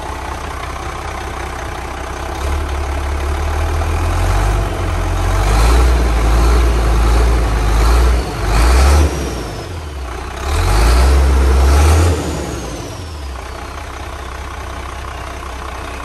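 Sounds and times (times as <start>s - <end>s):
engine idling: 0.0s - 16.0s
engine revving: 2.4s - 13.6s.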